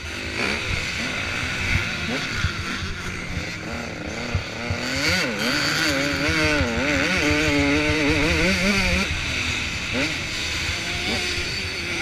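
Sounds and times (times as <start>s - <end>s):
dirt bike engine revving: 0.0s - 12.0s.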